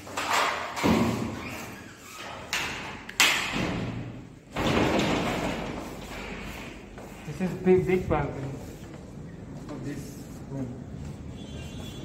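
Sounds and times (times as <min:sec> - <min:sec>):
door bolt knocks and thuds: 0:02.6 - 0:05.7.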